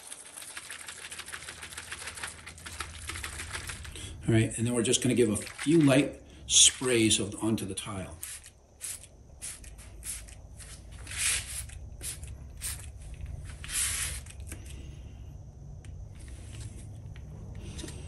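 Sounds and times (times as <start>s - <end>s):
spray bottle hissing: 8.2s - 14.6s.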